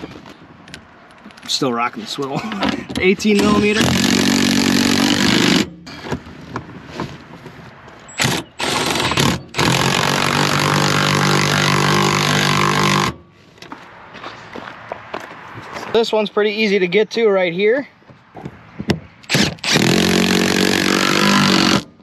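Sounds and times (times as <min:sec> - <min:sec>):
cordless power tool running: 0:03.7 - 0:05.6, 0:08.2 - 0:13.2, 0:19.3 - 0:21.9.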